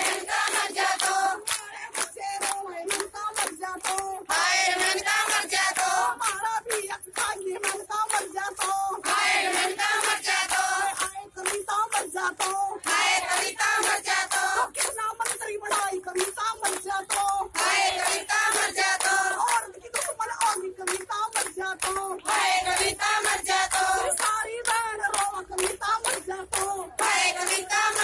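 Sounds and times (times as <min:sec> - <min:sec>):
hands clapping a steady beat: 0:00.0 - 0:28.0
women singing together: 0:00.0 - 0:28.0
woman singing into microphone: 0:14.4 - 0:28.0.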